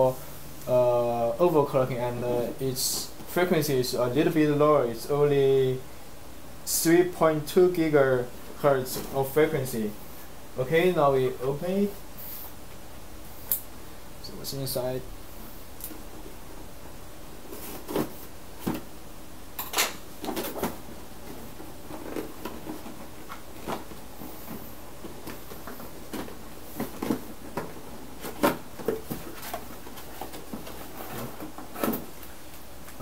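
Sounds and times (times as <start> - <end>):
cardboard scraping and rustling: 17.4 - 18.9, 20.1 - 32.2.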